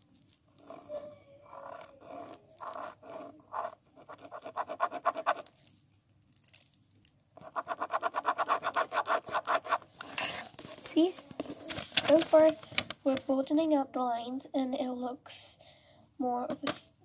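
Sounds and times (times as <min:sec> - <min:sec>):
pen scribbling on paper: 0:00.6 - 0:05.5, 0:07.4 - 0:10.5.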